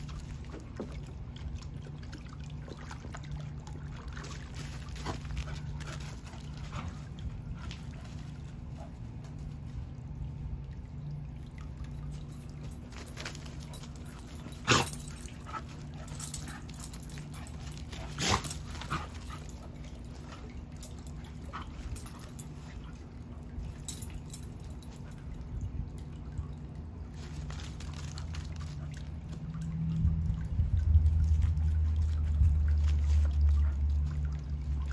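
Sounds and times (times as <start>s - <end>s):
steady low hum: 0.0s - 34.9s.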